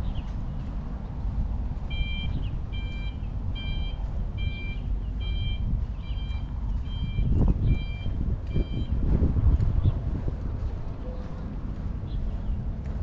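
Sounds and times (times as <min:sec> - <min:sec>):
electronic beeping: 0:01.9 - 0:09.0.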